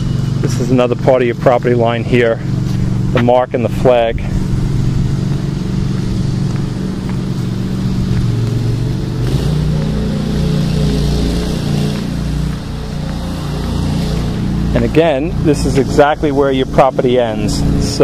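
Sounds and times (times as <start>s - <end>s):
motor engine running: 0.0s - 18.0s.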